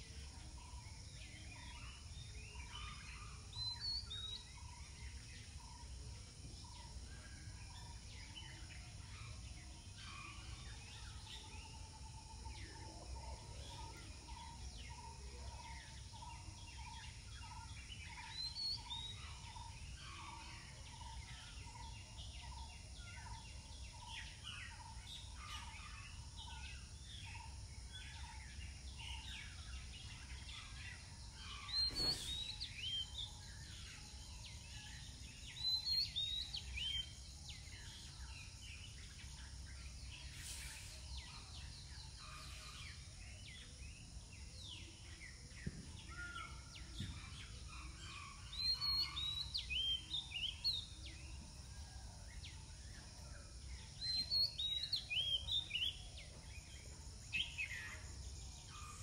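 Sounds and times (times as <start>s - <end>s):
faint bird chatter: 0.0s - 59.0s
quick high bird chirping: 31.6s - 32.8s.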